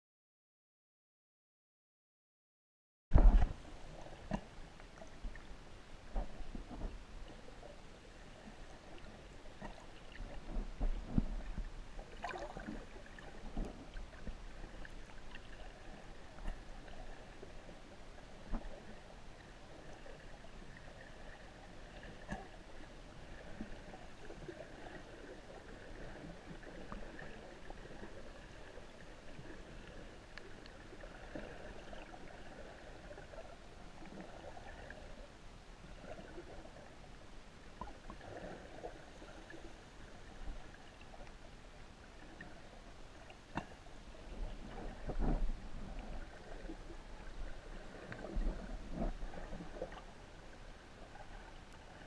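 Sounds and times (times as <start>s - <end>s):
underwater water noise: 3.1s - 52.0s
small underwater clicks: 3.2s - 7.0s, 9.0s - 16.7s, 30.2s - 32.3s, 37.7s - 38.9s, 43.2s - 43.8s, 48.0s - 50.1s.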